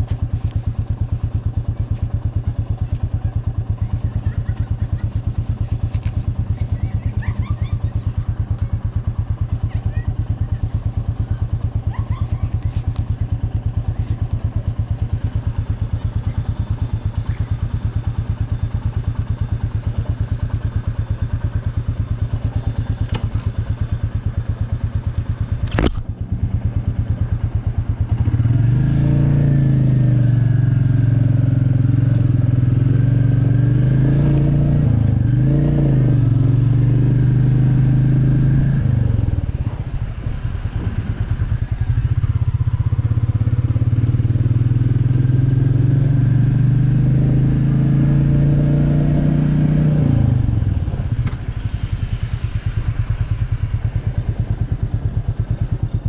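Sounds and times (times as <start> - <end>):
motorcycle engine idling: 0.0 - 34.0, 36.2 - 56.0
motorcycle engine revving: 0.0 - 56.0
sharp click: 25.6 - 26.1.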